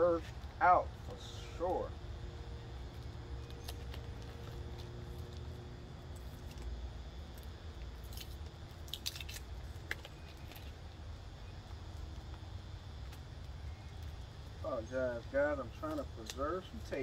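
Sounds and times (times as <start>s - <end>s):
steady low rumble: 0.0s - 17.0s
packing tape crinkling and clicking: 2.9s - 10.9s, 11.7s - 14.2s, 15.7s - 17.0s.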